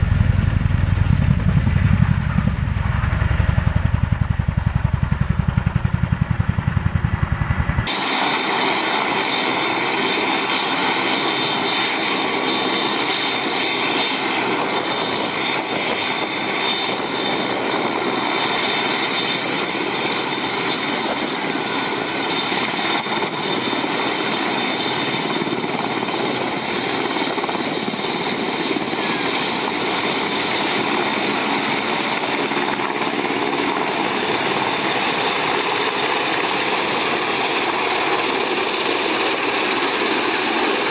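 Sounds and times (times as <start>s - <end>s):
deep rhythmic rotor thump: 0.0s - 7.9s
helicopter rotor and turbine noise: 0.0s - 40.9s.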